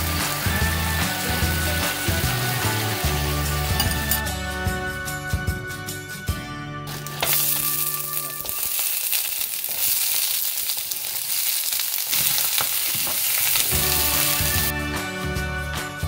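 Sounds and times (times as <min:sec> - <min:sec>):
vegetables sizzling in hot oil: 0:00.0 - 0:04.2, 0:06.9 - 0:14.7
background music: 0:00.0 - 0:10.5, 0:13.2 - 0:16.0
pieces landing in pan: 0:06.9 - 0:14.7
wooden spatula stirring: 0:06.9 - 0:14.7.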